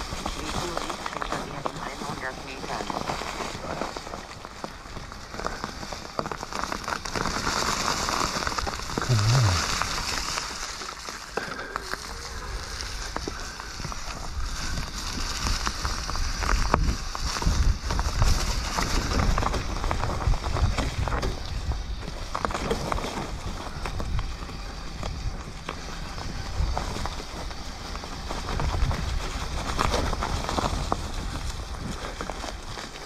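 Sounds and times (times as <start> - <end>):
bike tyres crackling over gravel: 0.0 - 33.0
low rumble: 9.0 - 10.0
bike rattling over bumps: 12.2 - 33.0.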